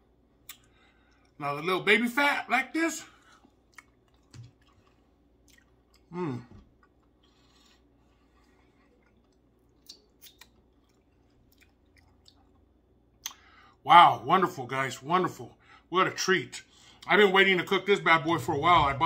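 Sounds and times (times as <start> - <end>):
man chewing: 0.4 - 1.4, 3.1 - 13.6
man humming: 6.1 - 6.6.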